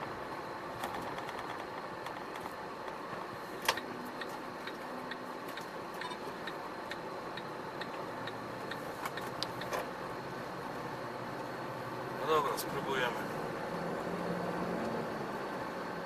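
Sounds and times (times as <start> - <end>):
truck cab background noise: 0.0 - 16.0
turn signal ticking: 3.6 - 12.2.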